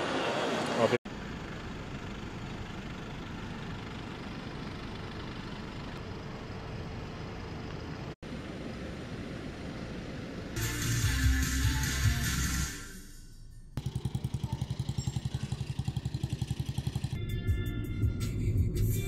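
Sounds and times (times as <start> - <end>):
vehicle engines and traffic hum: 0.0 - 19.0.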